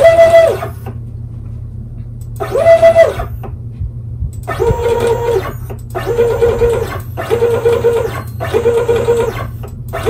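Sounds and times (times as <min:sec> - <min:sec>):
stepper motors whining: 0:00.0 - 0:01.1, 0:02.2 - 0:03.6, 0:04.3 - 0:10.0
low hum: 0:00.0 - 0:10.0.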